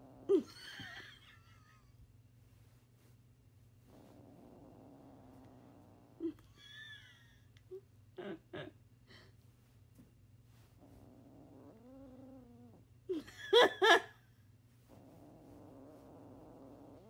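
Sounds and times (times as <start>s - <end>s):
kitten growling: 0.0s - 0.6s, 3.9s - 6.6s, 10.8s - 13.2s, 14.9s - 17.0s.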